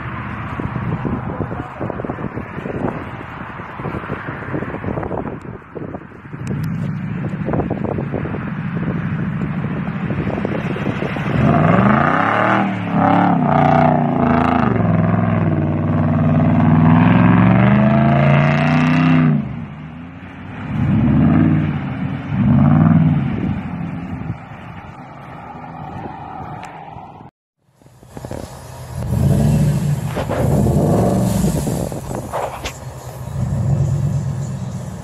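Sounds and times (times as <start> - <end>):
suv engine revving under load: 28.1 - 35.0.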